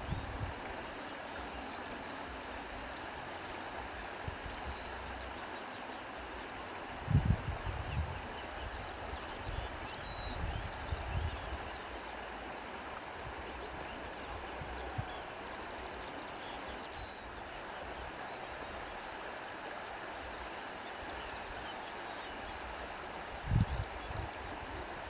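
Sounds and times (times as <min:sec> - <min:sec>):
wind buffeting microphone: 0:07.0 - 0:08.3, 0:23.4 - 0:24.8.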